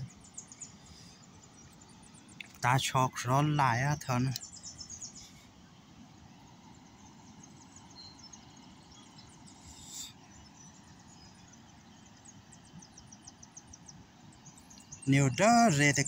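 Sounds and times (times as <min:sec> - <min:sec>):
brief hiss: 0:09.6 - 0:10.2.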